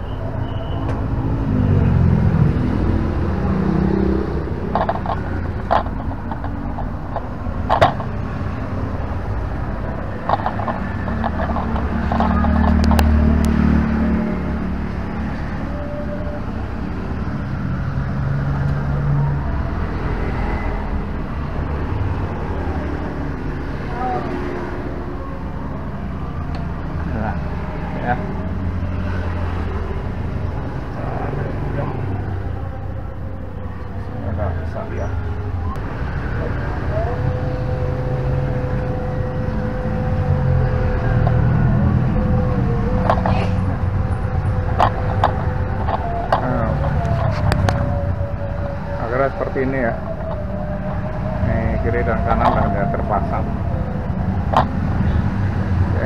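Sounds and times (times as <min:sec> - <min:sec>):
road traffic rumble: 0:00.0 - 0:56.0.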